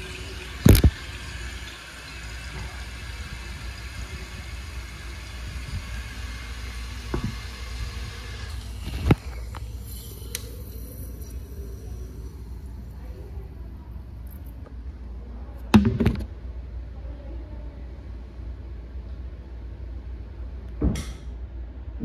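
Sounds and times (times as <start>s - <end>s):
toilet cistern refilling hiss: 0.0s - 14.5s.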